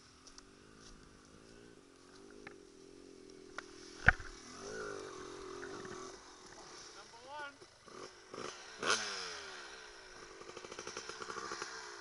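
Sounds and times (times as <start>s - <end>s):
dirt bike engine idling: 0.0s - 12.0s.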